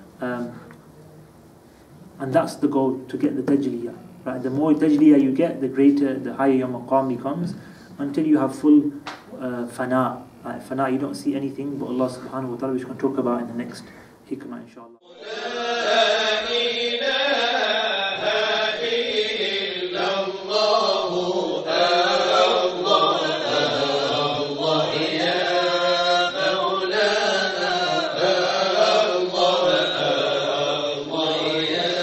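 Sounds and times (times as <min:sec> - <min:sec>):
melodic vocal chanting: 0:15.0 - 0:32.0.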